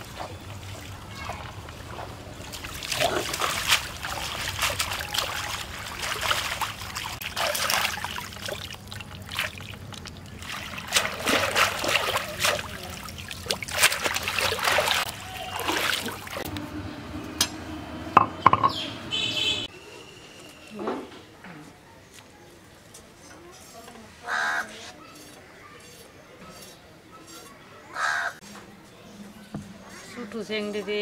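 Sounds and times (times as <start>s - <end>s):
water trickling off stems: 0.0s - 16.5s
water splashing and sloshing: 0.0s - 16.6s.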